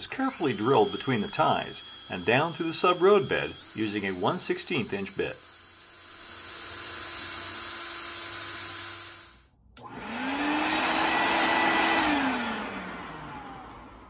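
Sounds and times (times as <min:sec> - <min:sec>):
electric drill whirring: 0:00.0 - 0:14.0
vacuum cleaner motor: 0:00.0 - 0:14.0.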